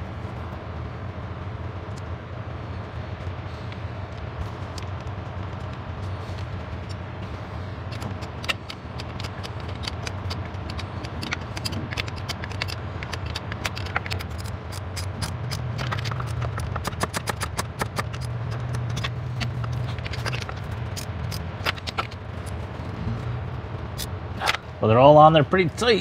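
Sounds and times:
low hum: 0.0s - 26.0s
ratchet wrench clicking: 7.9s - 22.6s.

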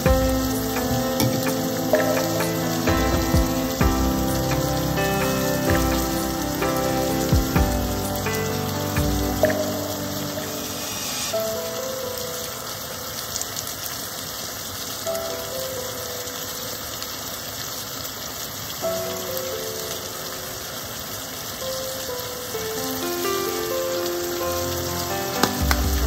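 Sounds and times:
soft background music: 0.0s - 13.4s, 19.0s - 26.0s
food sizzling in a frying pan: 0.0s - 26.0s.

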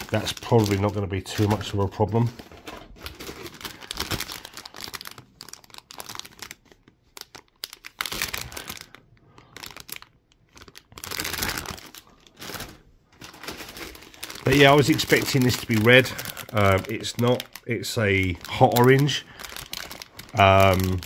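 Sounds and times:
plastic bags crinkling: 0.0s - 21.0s.

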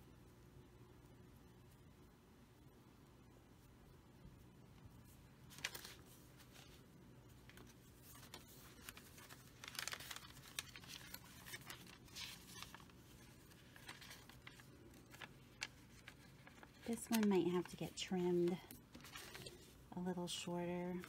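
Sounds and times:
paper rustling and crinkling: 5.0s - 21.0s.

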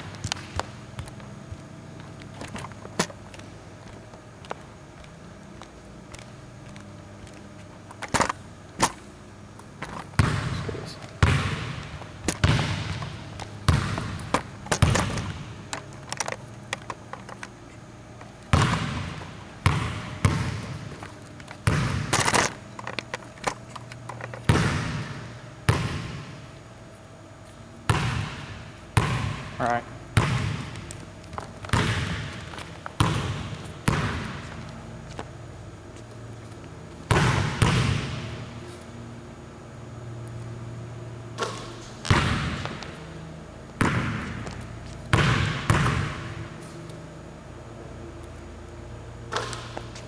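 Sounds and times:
basketball bouncing on wooden floor: 0.0s - 1.7s, 9.8s - 16.0s, 18.5s - 22.5s, 23.9s - 26.4s, 27.9s - 34.7s, 37.0s - 38.6s, 41.4s - 43.2s, 43.8s - 46.5s.

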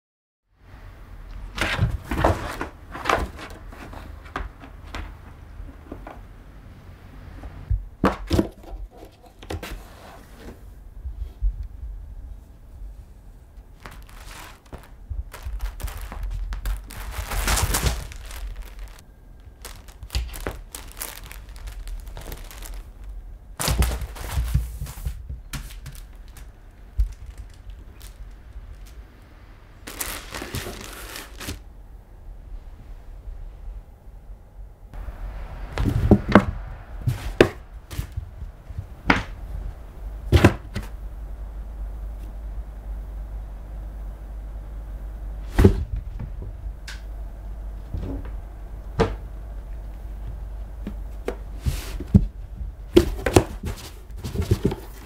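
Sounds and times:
cardboard pad scraping on floor: 1.5s - 4.4s, 8.9s - 10.7s, 13.8s - 19.0s, 19.6s - 26.4s, 29.9s - 31.6s, 51.2s - 52.3s
cat pawing at cardboard box: 52.9s - 55.0s.

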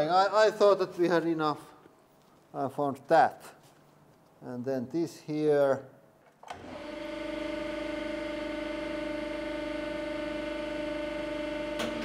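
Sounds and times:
hydraulic pump humming: 6.5s - 12.0s.

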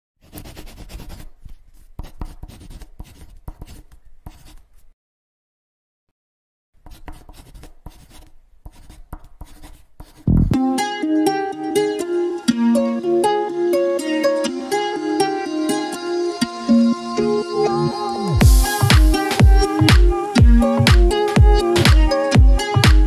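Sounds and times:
marker scribbling: 0.2s - 5.0s, 6.8s - 10.4s
upbeat ukulele music: 10.4s - 17.4s, 18.0s - 23.0s.

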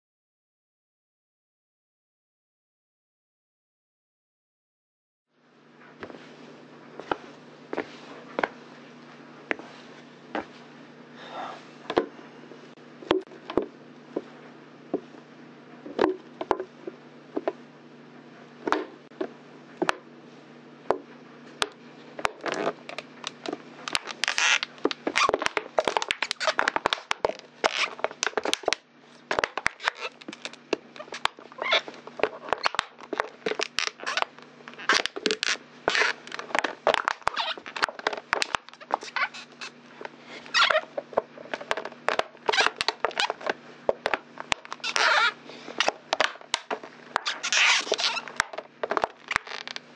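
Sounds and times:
boots crushing plastic bottle: 21.6s - 39.7s, 40.5s - 49.8s.

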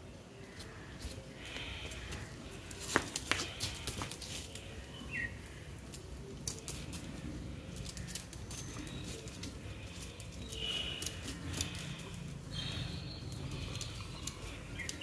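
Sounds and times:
scraping and pattering: 0.5s - 4.8s
sharp clacks on concrete: 2.8s - 4.2s
bird chirping: 10.3s - 15.0s.

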